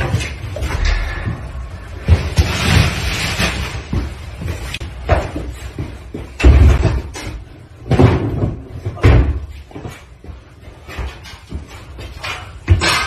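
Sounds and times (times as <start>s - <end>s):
furniture bangs and thuds: 3.8s - 10.0s.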